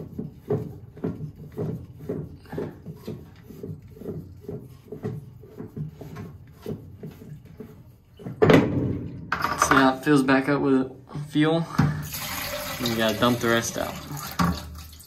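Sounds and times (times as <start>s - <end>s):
hand scraping filter canister: 0.0s - 8.6s.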